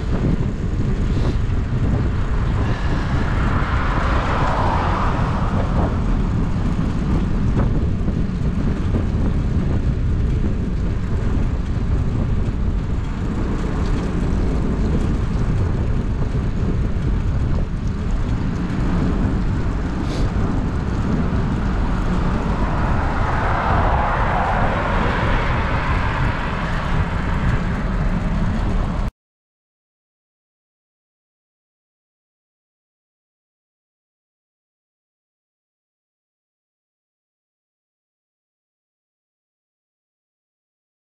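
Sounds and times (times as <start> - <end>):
wind buffeting microphone: 0.0 - 29.1
road and tyre hiss: 0.7 - 7.9, 17.0 - 29.1.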